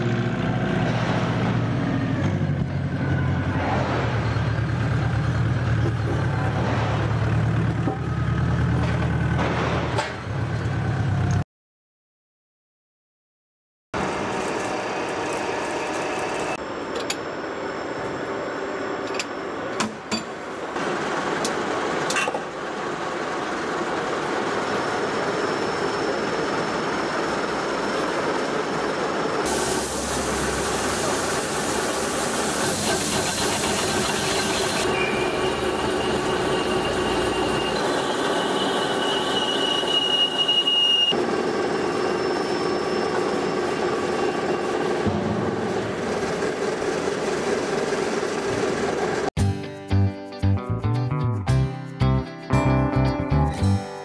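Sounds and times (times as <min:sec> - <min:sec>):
loud hiss: 0:29.5 - 0:36.5
cutting tool squealing on steel: 0:32.9 - 0:41.2.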